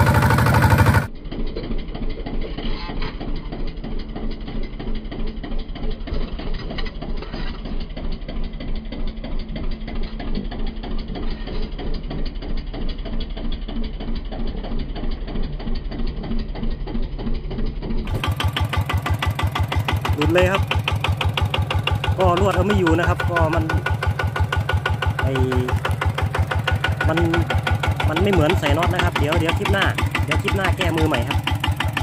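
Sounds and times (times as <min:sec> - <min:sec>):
diesel engine running: 0:00.0 - 0:32.0.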